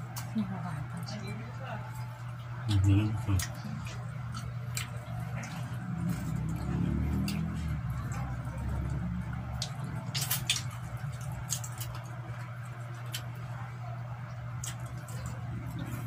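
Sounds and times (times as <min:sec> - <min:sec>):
people chewing chicken: 0:00.0 - 0:16.0
steady low hum: 0:00.0 - 0:16.0
wet mouth smacks and clicks: 0:09.6 - 0:10.7.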